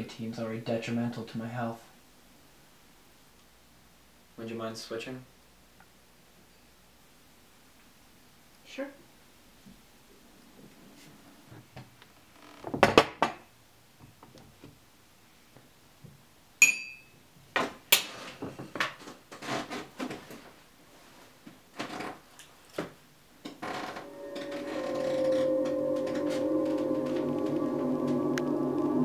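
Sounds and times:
spoon clinking in mug: 16.6 - 17.1.

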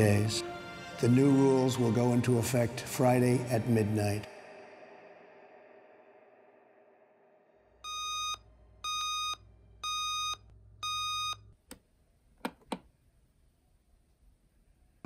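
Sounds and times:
alarm clock beeping: 7.8 - 11.4.

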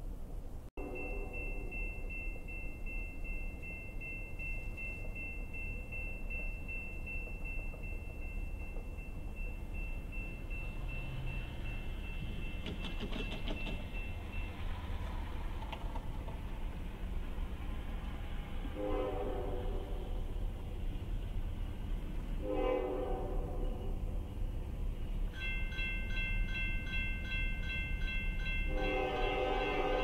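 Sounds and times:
crossing bell ringing: 0.8 - 15.4, 25.2 - 30.0.

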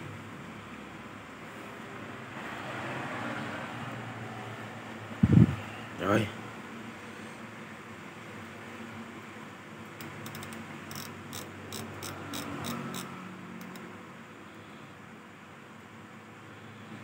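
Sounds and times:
fishing reel clicking: 10.0 - 13.8.

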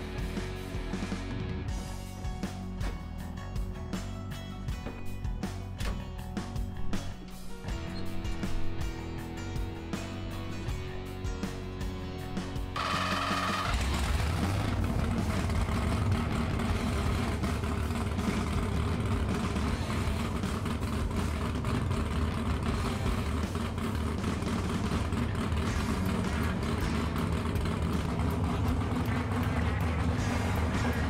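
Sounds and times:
supercharged engine running steadily: 4.8 - 31.0.

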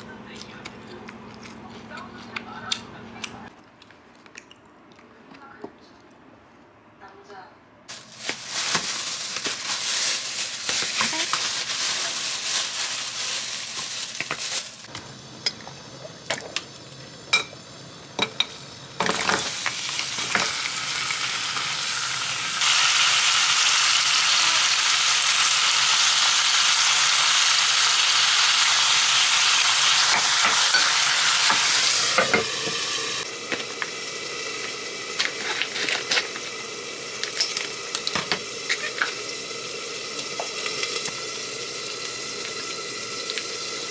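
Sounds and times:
plastic film crinkling: 7.9 - 14.9
tap water pouring into a pan: 37.1 - 43.9.

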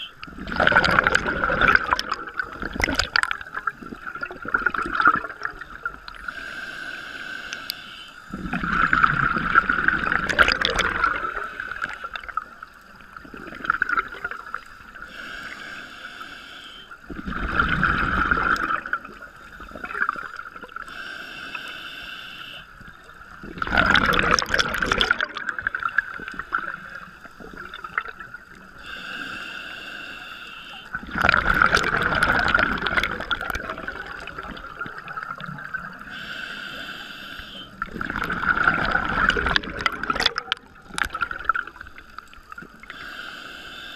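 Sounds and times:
gurgling exhaust bubbles: 0.3 - 6.0, 8.3 - 12.4, 23.4 - 26.7, 30.9 - 35.8, 37.8 - 41.8
regulator hissing inhale: 6.2 - 8.4, 11.2 - 12.9, 14.5 - 17.1, 19.4 - 22.9, 28.4 - 31.0, 36.0 - 37.8, 41.8 - 43.9.

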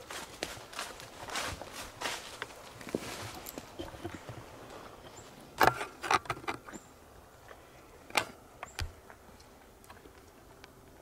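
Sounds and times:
footsteps in dry leaves: 0.0 - 3.8.

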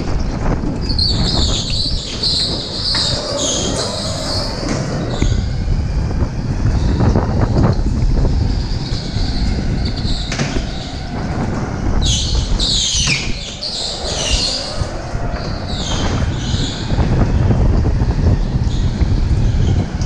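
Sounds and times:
go-kart low rumble: 0.0 - 20.0
wind on microphone: 0.0 - 20.0
tyres squealing: 0.9 - 5.6, 8.6 - 17.0.

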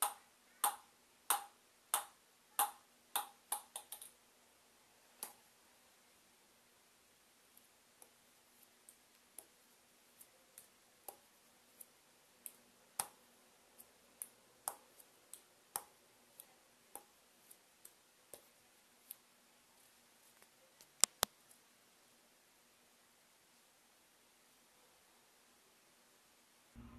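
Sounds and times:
ping-pong ball bouncing on paddle: 0.0 - 4.0.

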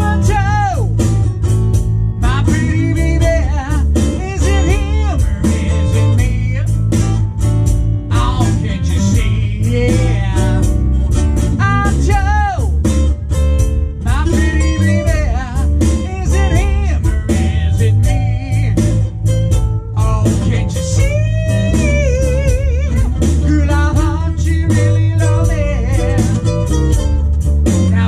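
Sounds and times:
person singing: 0.0 - 1.0, 2.2 - 7.0, 8.1 - 10.9, 11.6 - 12.9, 14.0 - 19.2, 20.0 - 27.1
bass guitar: 0.0 - 28.0
cigar box guitar: 0.0 - 28.0
steady beat: 0.0 - 28.0.

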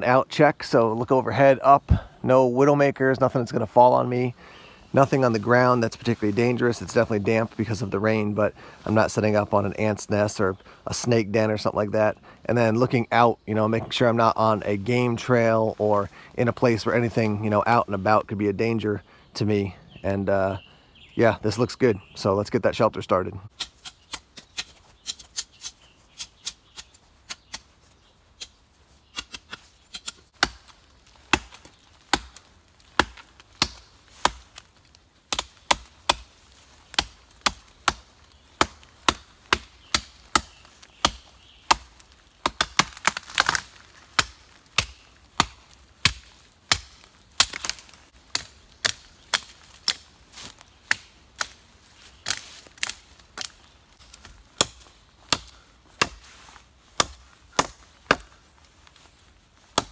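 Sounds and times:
machete chopping into branch: 36.9 - 56.3.

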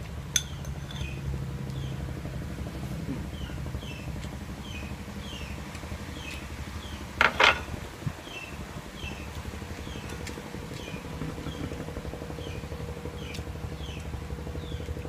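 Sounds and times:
steady low hum: 0.0 - 15.0
bird chirping: 3.1 - 7.1, 8.2 - 14.9.

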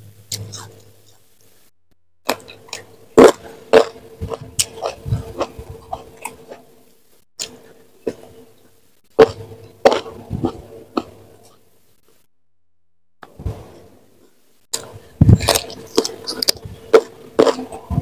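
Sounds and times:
chewing crunches: 2.2 - 6.7, 9.2 - 11.6, 14.7 - 18.0
wet mouth sounds: 2.3 - 6.6, 7.4 - 8.3, 14.7 - 18.0.

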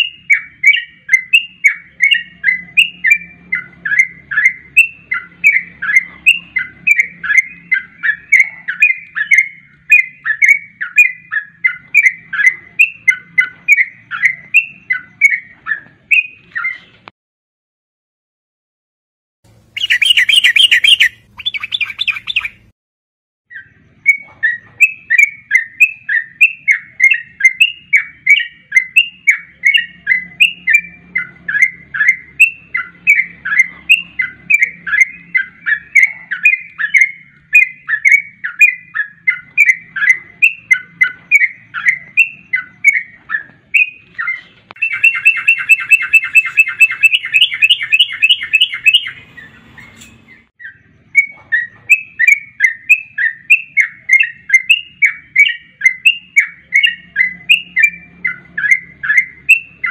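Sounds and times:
bird quick repeated chirping: 19.5 - 22.7, 23.5 - 59.9
bird rapid bubbly chattering: 19.8 - 22.6.

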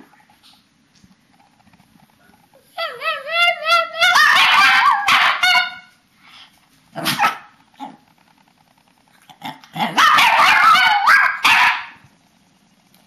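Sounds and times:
dog barking: 4.1 - 5.9, 7.0 - 7.5, 9.9 - 12.0.

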